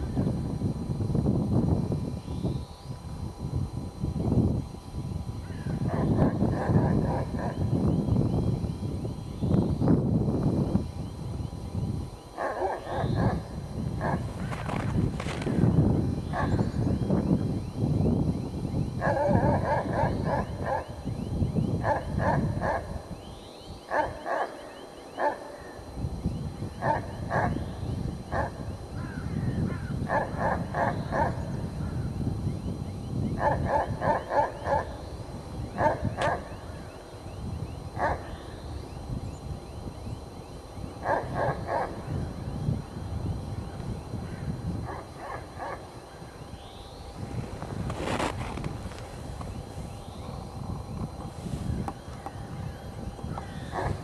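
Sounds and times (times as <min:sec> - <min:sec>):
dog barking: 0:12.4 - 0:13.4, 0:19.0 - 0:20.9, 0:21.8 - 0:22.9, 0:23.9 - 0:24.6, 0:25.2 - 0:25.6, 0:26.8 - 0:27.6, 0:30.1 - 0:31.4, 0:33.4 - 0:35.0, 0:35.8 - 0:36.6, 0:38.0 - 0:38.3, 0:41.0 - 0:42.0, 0:44.9 - 0:45.9.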